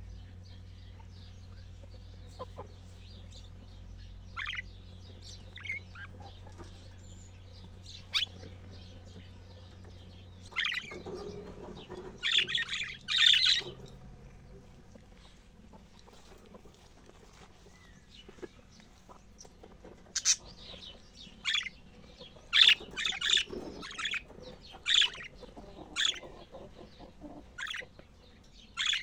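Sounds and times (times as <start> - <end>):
budgerigars chirping: 0.2 - 16.4, 17.6 - 29.0
rapid chattering warble: 4.3 - 7.0, 7.7 - 14.8, 21.4 - 27.0.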